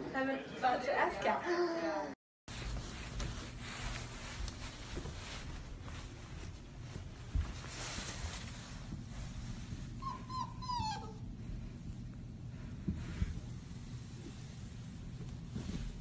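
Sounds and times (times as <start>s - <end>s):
puppy whimpering: 10.0s - 11.3s.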